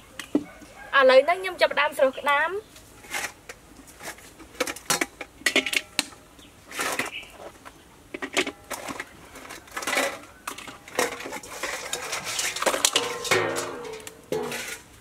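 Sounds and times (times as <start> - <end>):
crab shells clattering on metal: 4.0 - 7.2, 8.1 - 14.9.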